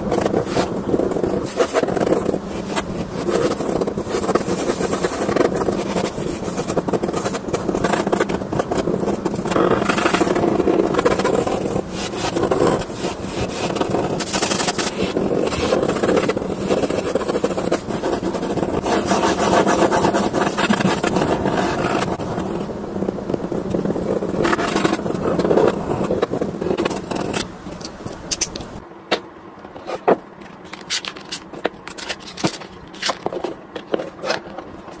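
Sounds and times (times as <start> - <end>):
pen scratching on paper: 0.0 - 27.5.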